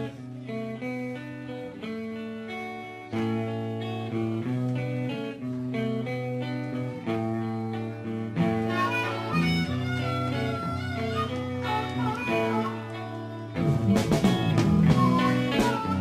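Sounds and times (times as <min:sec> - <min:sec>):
guitar-led intro music: 0:00.0 - 0:16.0.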